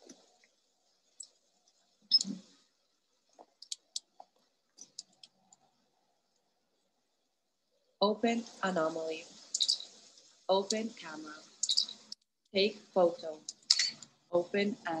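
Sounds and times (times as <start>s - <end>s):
faint clicks and taps: 0.0s - 2.6s, 3.2s - 6.5s.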